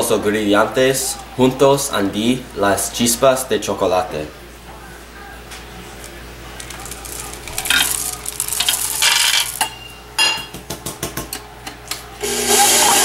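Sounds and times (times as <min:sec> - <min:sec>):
chocolate chips rattling: 0:06.6 - 0:09.9.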